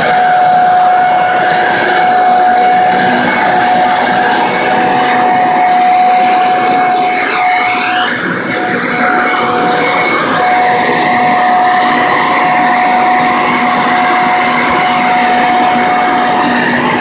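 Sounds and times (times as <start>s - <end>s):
electric leaf blower running: 0.0s - 17.0s.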